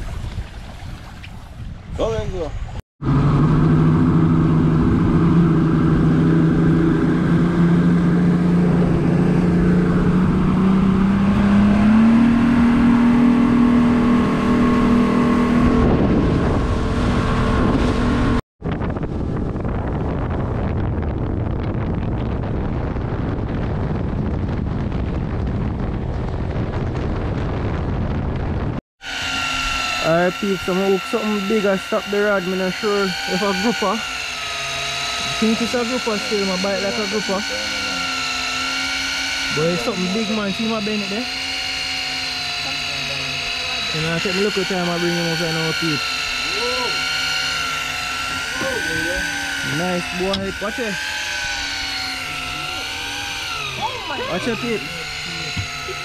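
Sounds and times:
wind and water rushing: 0.0 - 28.8
outboard motor: 0.0 - 56.0.

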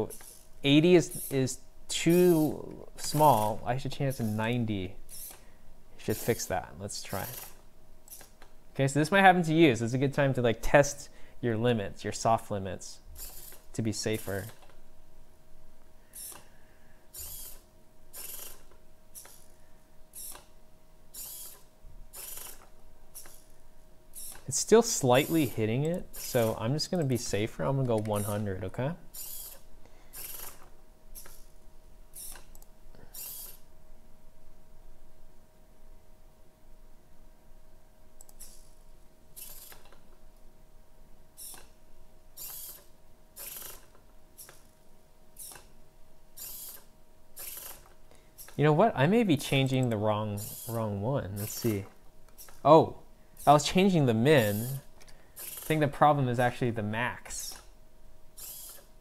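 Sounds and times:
servo motors whirring: 1.1 - 1.4, 2.0 - 4.4, 5.1 - 5.4, 6.0 - 8.4, 13.2 - 14.6, 16.1 - 16.4, 17.1 - 19.5, 20.2 - 20.5, 21.1 - 23.5, 24.2 - 24.5, 25.2 - 26.6, 28.0 - 28.4, 29.2 - 31.5, 33.1 - 33.6, 38.3 - 38.8, 39.4 - 39.9, 42.4 - 44.7, 45.4 - 45.7, 46.4 - 48.6, 50.4 - 50.8, 51.4 - 52.6, 54.4 - 55.8, 58.4 - 58.9.

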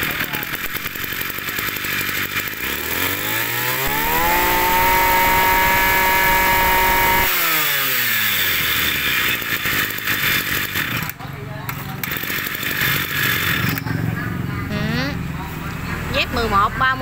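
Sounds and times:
brush cutter engine revving: 0.0 - 13.9.

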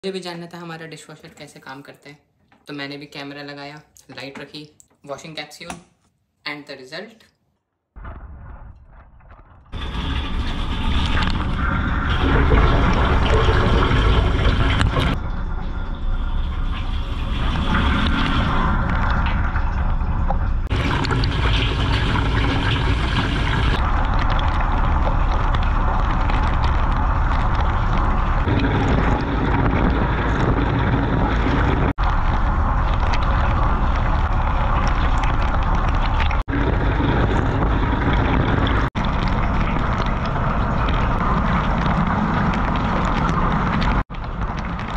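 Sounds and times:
low rumble: 8.0 - 44.9.

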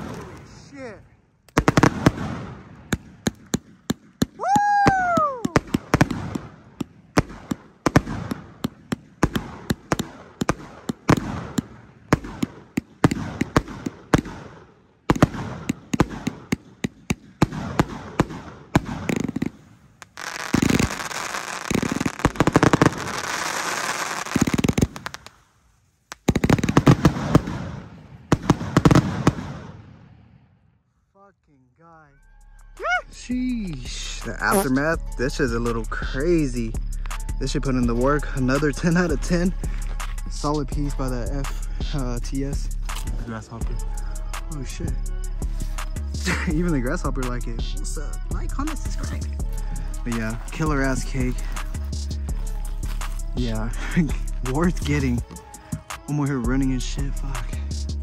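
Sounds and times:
firework crackling: 0.0 - 30.4, 32.8 - 58.0
firework cake barrage: 0.0 - 30.6, 32.8 - 58.0
firework whistle: 4.3 - 6.5, 17.4 - 25.4.

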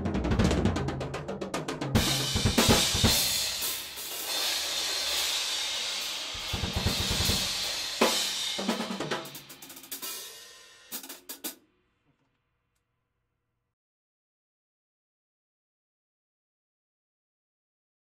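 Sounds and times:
drum hits: 0.0 - 5.2, 6.3 - 10.1.

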